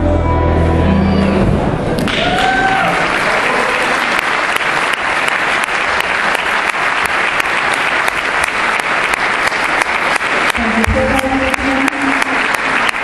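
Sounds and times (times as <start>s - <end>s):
audience applauding: 2.0s - 13.0s
person whooping: 2.1s - 3.9s.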